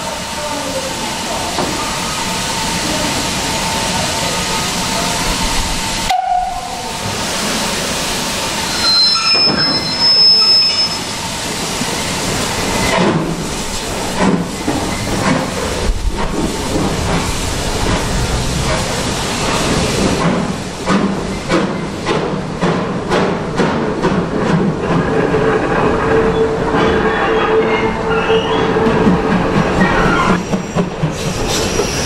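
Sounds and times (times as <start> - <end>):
steam hissing: 0.0 - 24.8, 26.8 - 32.0
high steam whistle: 5.7 - 6.9, 8.6 - 11.2.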